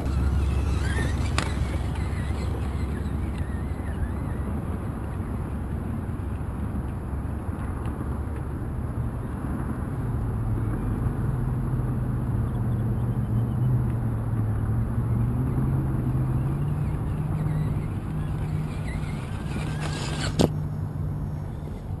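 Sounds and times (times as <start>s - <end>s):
electric motor whining: 0.0s - 4.5s, 16.8s - 20.5s.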